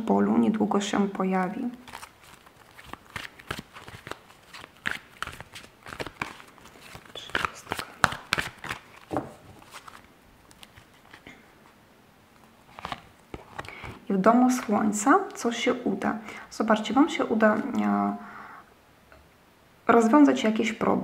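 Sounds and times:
cards being shuffled: 1.6s - 11.3s, 12.6s - 14.0s.

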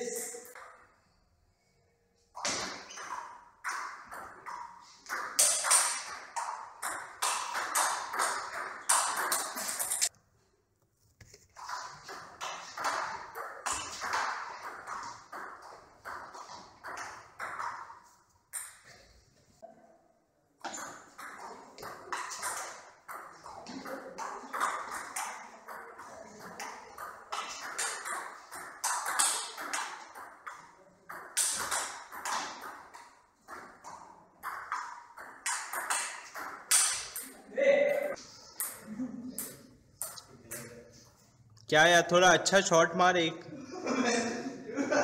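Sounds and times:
ball bouncing on table: 2.4s - 10.0s, 11.6s - 19.0s, 20.6s - 37.4s
ball clicking off paddles: 2.4s - 10.1s, 20.6s - 37.4s.

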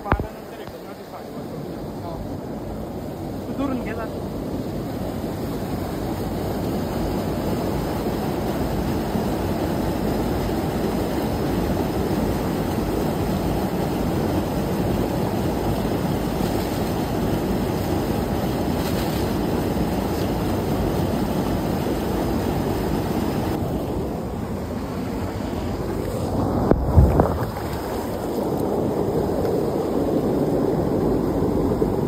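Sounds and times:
fast-flowing stream water rushing: 5.1s - 31.2s.

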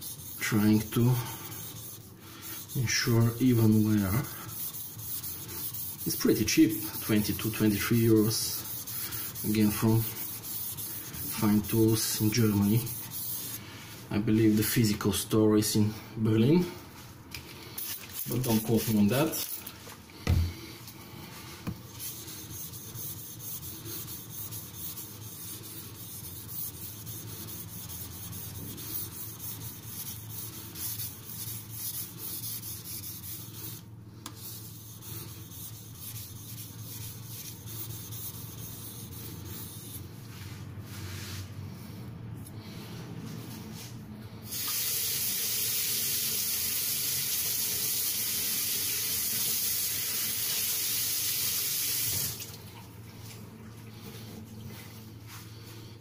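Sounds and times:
water tap running: 44.5s - 52.6s.

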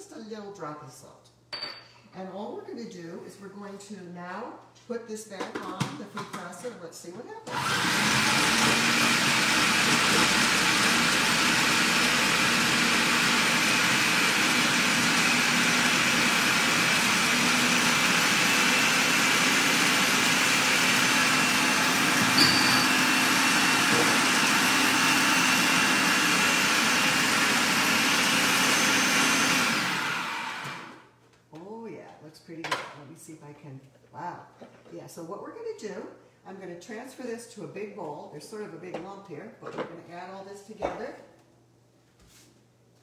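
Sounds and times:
food processor running: 7.5s - 31.1s.

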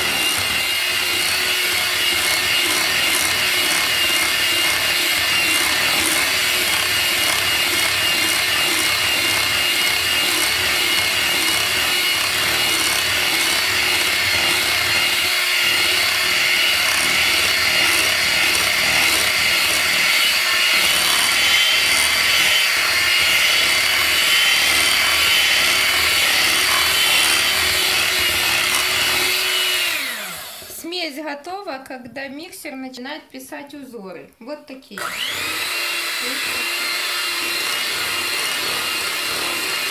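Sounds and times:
beaters churning batter: 0.0s - 30.8s, 35.0s - 39.9s
electric hand mixer running: 0.0s - 30.8s, 35.0s - 39.9s.

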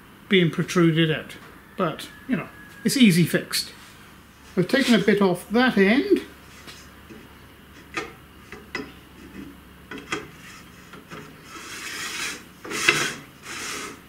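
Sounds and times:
metal scraping on metal: 9.2s - 14.0s.

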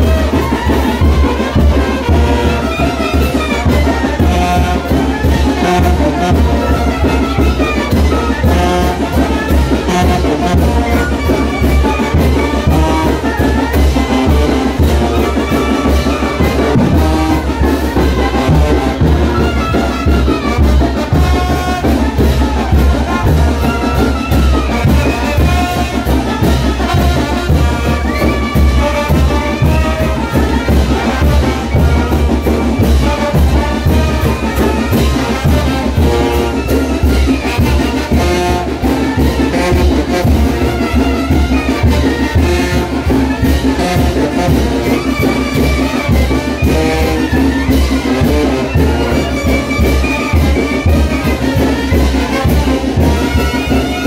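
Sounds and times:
brass band playing dance tune: 0.0s - 54.0s.

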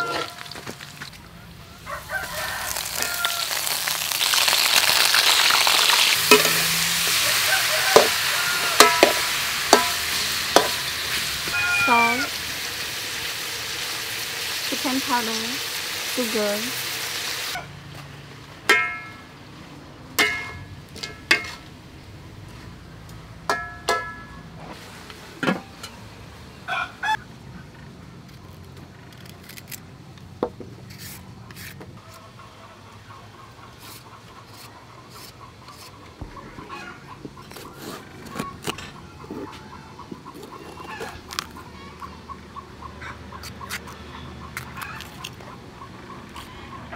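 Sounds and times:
chickens clucking: 32.0s - 46.9s.

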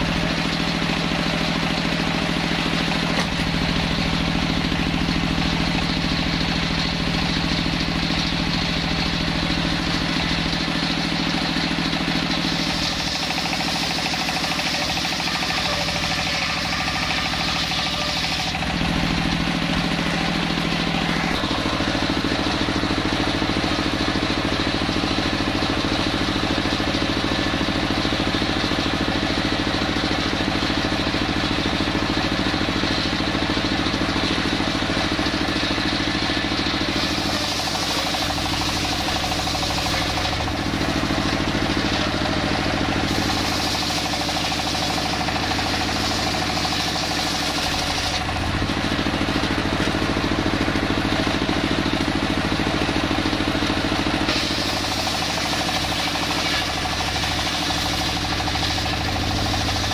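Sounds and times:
sawmill engine running: 0.0s - 59.9s
circular saw ripping a log: 12.4s - 19.1s, 36.8s - 50.1s, 54.0s - 59.9s.

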